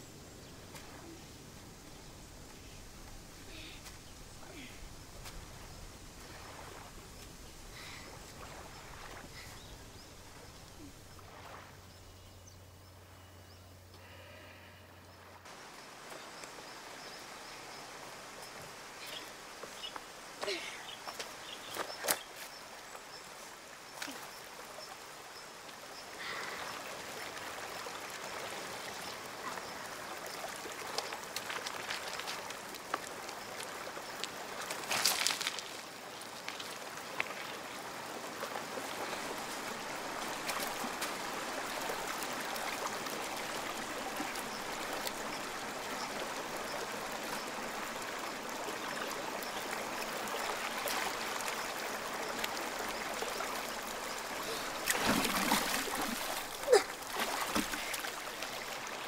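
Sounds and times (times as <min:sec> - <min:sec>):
stream running over stones: 0:00.0 - 0:59.0
stones clicking underfoot: 0:34.2 - 0:37.3.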